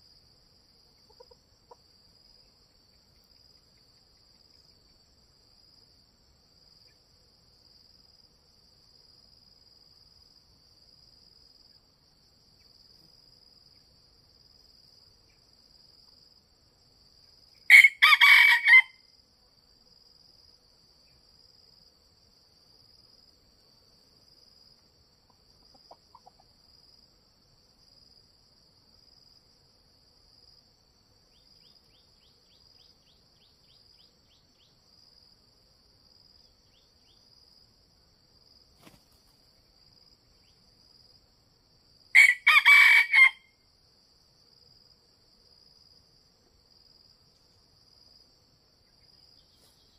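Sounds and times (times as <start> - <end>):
rooster crowing: 17.7 - 19.1, 42.1 - 43.6.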